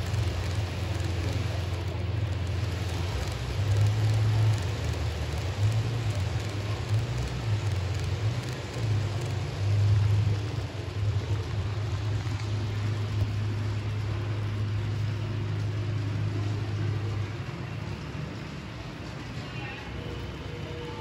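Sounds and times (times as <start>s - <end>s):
hiss: 0.0s - 18.0s
model trains rumbling: 0.0s - 21.0s.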